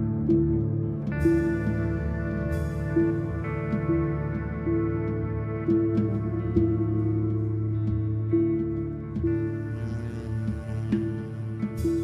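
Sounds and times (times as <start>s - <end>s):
steady low tone: 0.0s - 12.0s
saxophone long notes: 9.2s - 12.0s.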